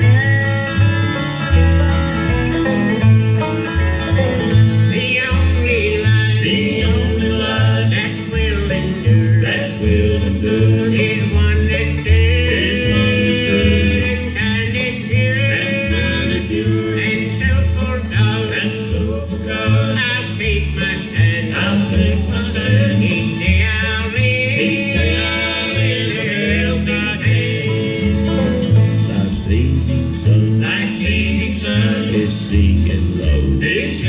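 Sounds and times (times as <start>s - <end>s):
picked banjo: 0.0s - 34.0s
resonator guitar: 0.0s - 34.0s
strummed acoustic guitar: 0.0s - 34.0s
upright bass walking: 0.0s - 34.0s.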